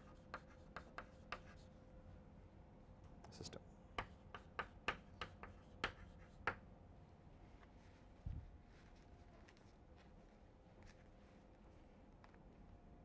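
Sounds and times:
chalk tapping and scratching on blackboard: 0.0s - 1.7s, 4.0s - 6.6s.

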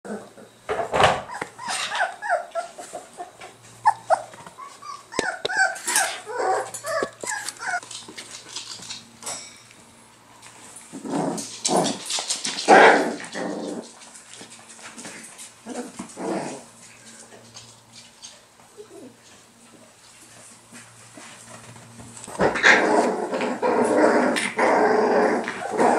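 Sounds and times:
puppies yipping and squealing: 1.2s - 8.9s
puppies growling scuffles: 1.3s - 9.2s, 10.4s - 18.2s, 19.3s - 25.9s.

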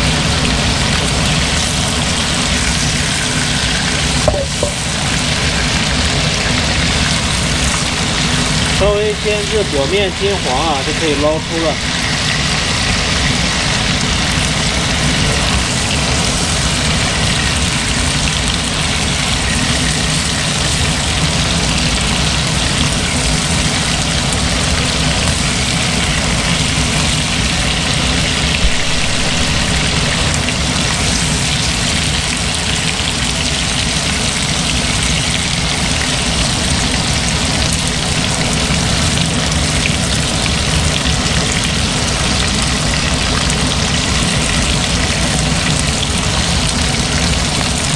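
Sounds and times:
chicken wings sizzling in oil: 0.0s - 47.9s
brief knock: 4.3s - 4.8s.

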